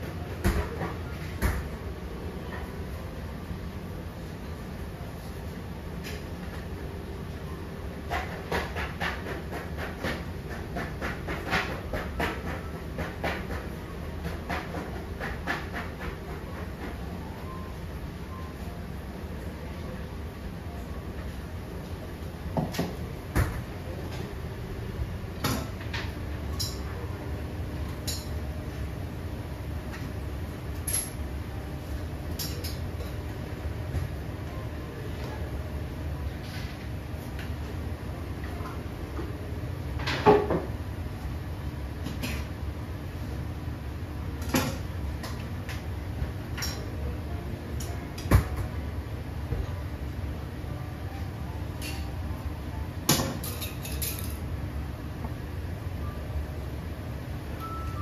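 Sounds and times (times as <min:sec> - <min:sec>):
utensils and dishes clinking: 0:25.5 - 0:27.0, 0:28.0 - 0:28.4, 0:30.8 - 0:31.2, 0:32.3 - 0:33.2, 0:53.1 - 0:54.4.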